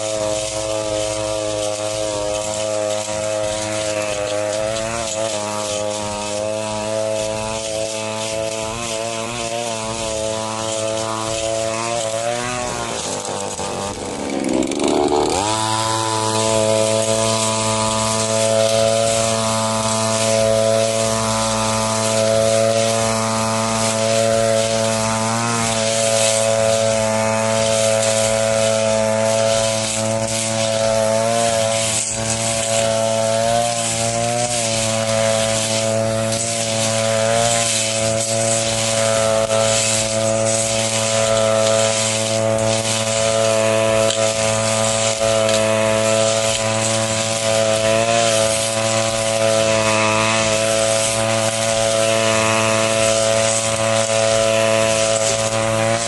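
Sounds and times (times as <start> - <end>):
brush cutter petrol engine: 0.0 - 56.0.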